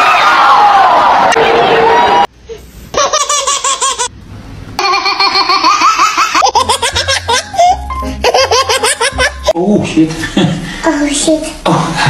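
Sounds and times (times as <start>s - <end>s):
babies giggling: 2.9s - 4.1s, 4.8s - 9.6s.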